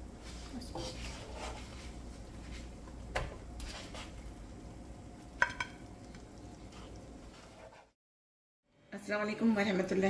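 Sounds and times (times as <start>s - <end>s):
low kitchen hiss: 0.0s - 7.9s.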